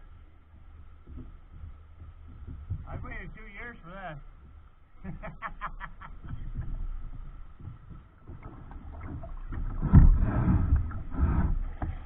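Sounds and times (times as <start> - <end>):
water lapping against hull: 0.0 - 12.0
wind buffeting microphone: 6.2 - 12.0.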